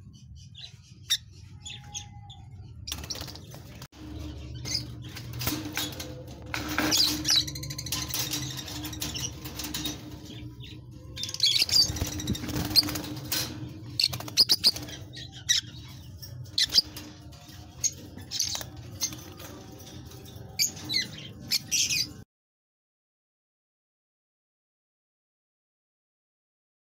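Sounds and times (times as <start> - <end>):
birds chirping: 0.0 - 22.2
wings flapping: 2.9 - 10.6, 11.2 - 15.3.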